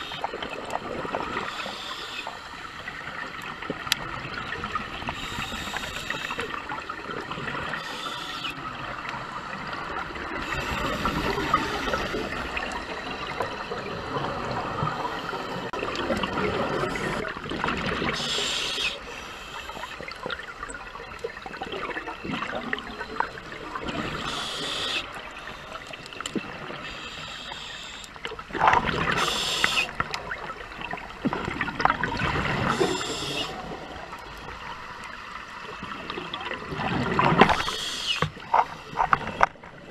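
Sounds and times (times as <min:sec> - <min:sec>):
regulator breathing underwater: 0:05.1 - 0:06.4, 0:18.1 - 0:20.1, 0:24.0 - 0:25.8, 0:26.8 - 0:28.2, 0:29.1 - 0:30.0, 0:32.5 - 0:33.8, 0:37.5 - 0:39.0
bubbles gurgling: 0:15.6 - 0:18.2, 0:20.2 - 0:24.3, 0:28.4 - 0:34.6, 0:35.6 - 0:37.7.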